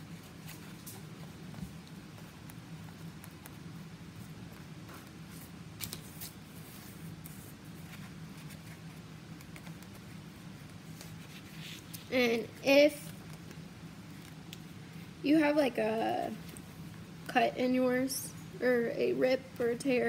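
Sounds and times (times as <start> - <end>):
soft scratching of brush: 0.0 - 12.1
steady low hum: 0.0 - 20.0.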